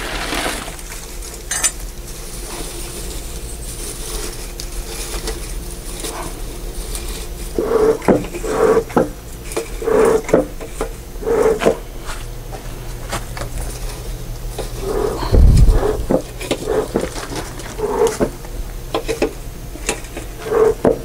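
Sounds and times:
bee smoker bellows puffing: 2.0s - 21.0s
low thump: 15.3s - 16.1s.

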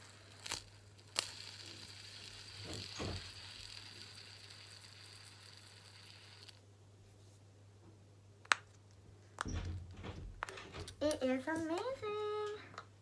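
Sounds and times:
fidget spinner click: 0.0s - 6.6s
fidget spinner whirring: 0.0s - 6.7s.

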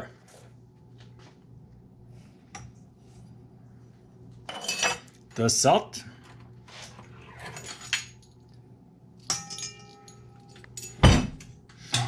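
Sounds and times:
kitchen clinks: 9.2s - 12.0s.

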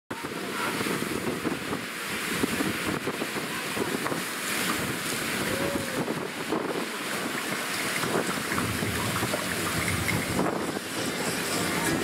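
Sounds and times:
wind buffeting microphone: 0.1s - 12.0s.

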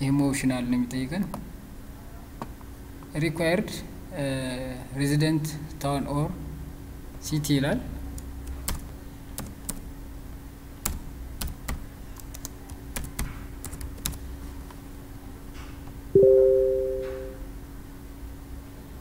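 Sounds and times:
keyboard keys clicking: 8.2s - 9.8s, 10.8s - 14.2s
two-tone notification chime: 16.2s - 17.4s.

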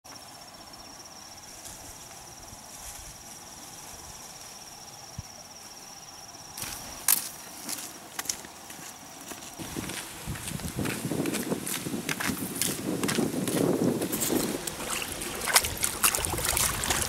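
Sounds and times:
forest background hum: 0.1s - 17.0s
sharp rustling crunches: 6.6s - 17.0s.

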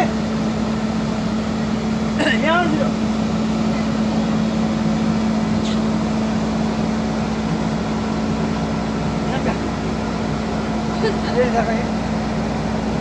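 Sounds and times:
excavator diesel engine running: 0.0s - 13.0s.

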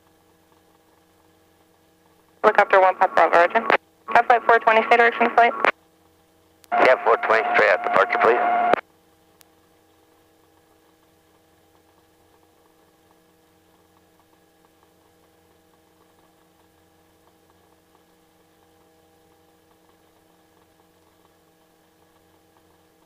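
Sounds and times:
faint intercom hum: 2.4s - 5.7s, 6.7s - 8.8s
faint ticks: 9.1s - 23.0s.

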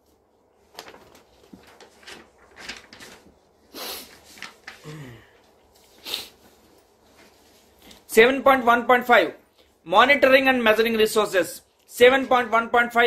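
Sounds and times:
rustling and handling noises: 0.0s - 8.2s
loud hissy breaths: 3.7s - 4.2s, 4.8s - 6.4s
faint breathing: 4.8s - 6.4s.

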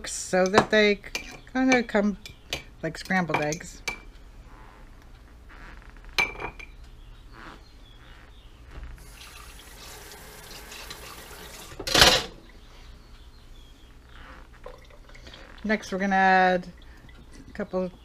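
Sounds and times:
water running from a tap: 9.0s - 12.0s.

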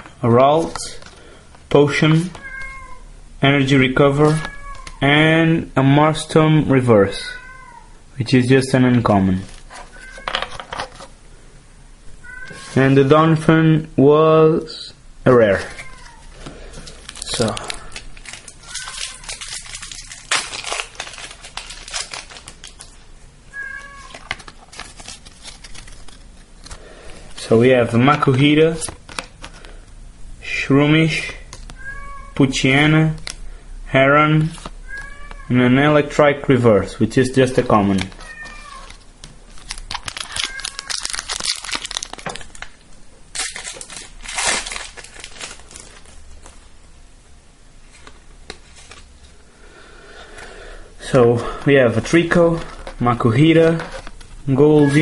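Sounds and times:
cards rustling and clicking: 0.0s - 2.4s, 15.5s - 23.0s, 23.8s - 29.8s, 37.4s - 46.6s, 47.9s - 49.2s, 52.0s - 55.0s
cat meowing: 2.3s - 3.1s, 4.3s - 5.0s, 7.3s - 7.9s, 9.9s - 10.4s, 12.2s - 12.8s, 15.6s - 16.3s, 18.6s - 19.6s, 23.5s - 24.2s, 31.8s - 32.4s, 34.8s - 35.5s, 38.1s - 39.0s, 40.3s - 41.1s
foil wrapper crinkling and tearing: 15.6s - 23.1s, 23.7s - 27.5s, 37.6s - 46.6s.

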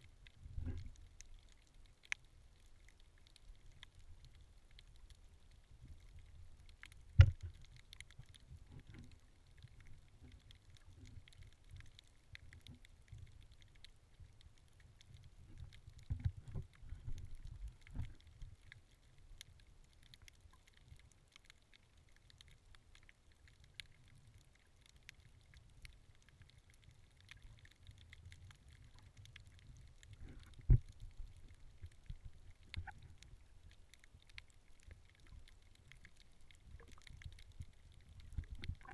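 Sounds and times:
faint crackling: 0.0s - 38.9s
muffled underwater rumble of water: 0.0s - 38.9s
sharp knocks underwater: 7.2s - 7.6s.

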